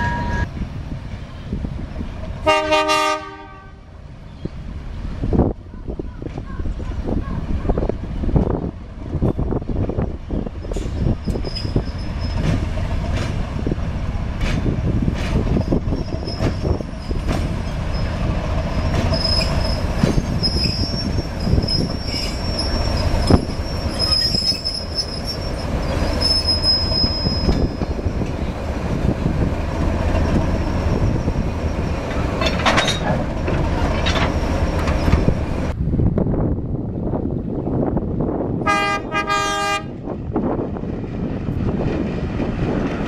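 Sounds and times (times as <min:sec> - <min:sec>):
locomotive engine low rumble: 0:03.6 - 0:43.0
wheels squealing: 0:10.2 - 0:12.6, 0:15.4 - 0:28.6, 0:30.0 - 0:35.7.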